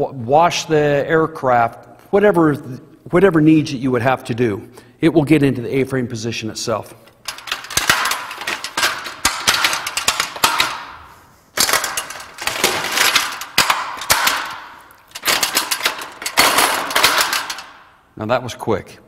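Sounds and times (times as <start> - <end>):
metal ladder clanking and rattling: 7.1 - 18.0.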